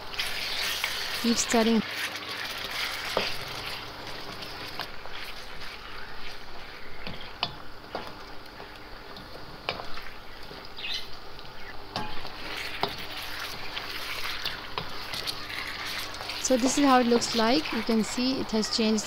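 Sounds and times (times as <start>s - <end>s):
meat sizzling in hot oil: 0.0s - 19.0s
spatula scraping and clacking pan: 0.1s - 5.7s, 11.9s - 18.8s.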